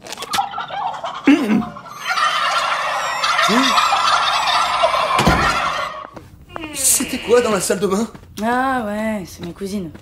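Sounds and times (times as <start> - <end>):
cartoon voices gobbling: 0.5 - 6.1.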